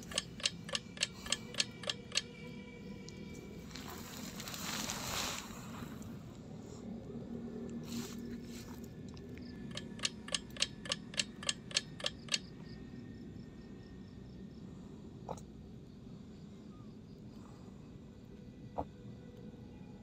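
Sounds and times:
rapid sharp clicks: 0.0s - 2.3s, 9.6s - 12.5s
faint steady background noise: 0.0s - 20.0s.

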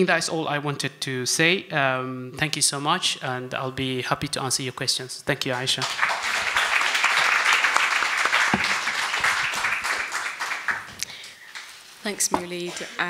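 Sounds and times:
audience applauding: 5.8s - 11.7s.

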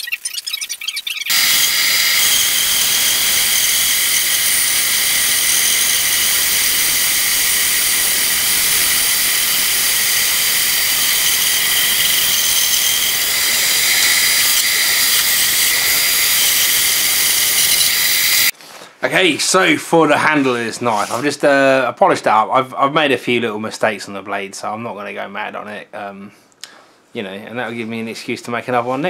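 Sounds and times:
bandsaw cutting wood: 1.3s - 18.5s.

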